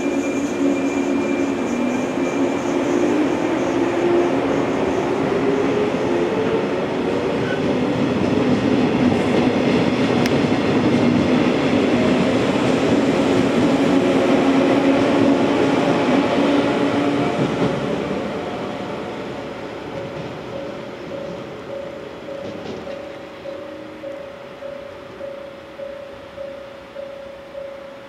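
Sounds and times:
wheels rumbling and clacking on rails: 0.0s - 28.0s
electric train motors humming: 12.0s - 28.0s.

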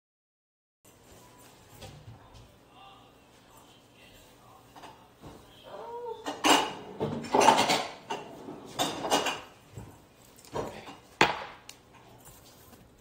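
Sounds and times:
dishes and cutlery clattering: 4.7s - 12.6s.

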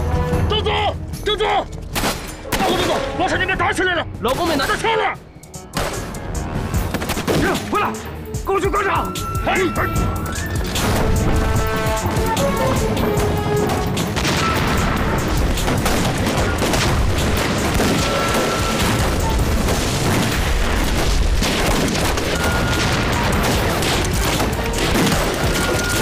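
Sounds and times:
background film music: 0.0s - 26.0s
booming explosions: 13.7s - 26.0s
gunfire: 14.0s - 26.0s.

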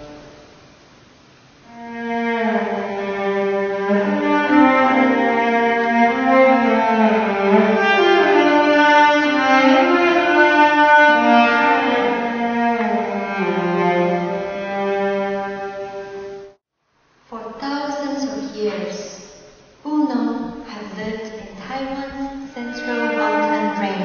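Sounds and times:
solo cello melody: 0.0s - 0.7s, 1.6s - 16.6s, 22.4s - 24.0s.

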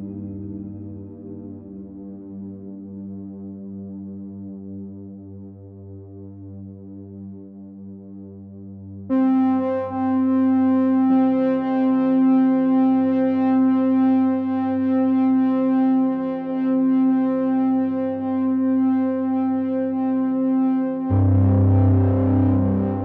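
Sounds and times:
held synthesizer chord: 9.1s - 23.0s.

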